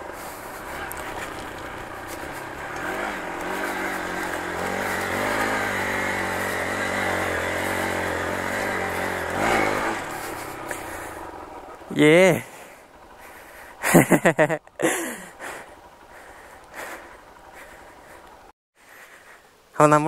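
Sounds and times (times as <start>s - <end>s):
motorcycle engine running: 0.0s - 18.5s.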